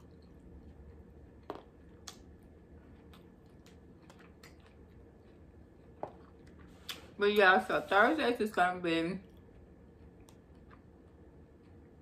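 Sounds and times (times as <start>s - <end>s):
low room noise: 0.0s - 12.0s
clicks of person eating: 1.4s - 2.4s, 3.0s - 5.1s.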